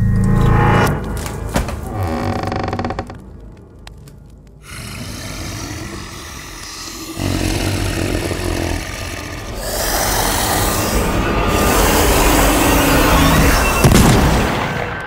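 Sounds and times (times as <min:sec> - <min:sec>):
rumbling hissing drone: 0:04.6 - 0:13.9.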